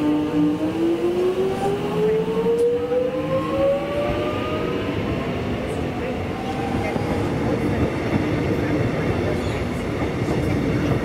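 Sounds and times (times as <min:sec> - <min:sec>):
wheels rumbling on rails: 0:00.0 - 0:11.0.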